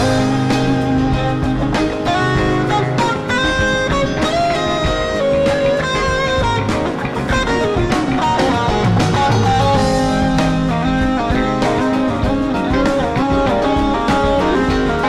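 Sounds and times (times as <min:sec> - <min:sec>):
drum kit: 0:00.0 - 0:15.0
electric bass: 0:00.0 - 0:15.0
electric guitars: 0:00.0 - 0:15.0
keyboards: 0:00.0 - 0:15.0.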